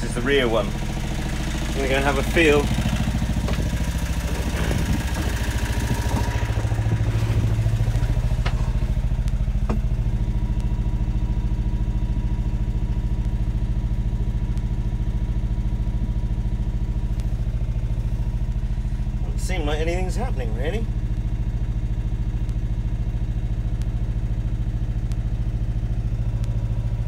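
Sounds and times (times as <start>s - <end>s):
boat engine idling: 0.0s - 27.0s
rustling and light knocks: 3.4s - 9.0s.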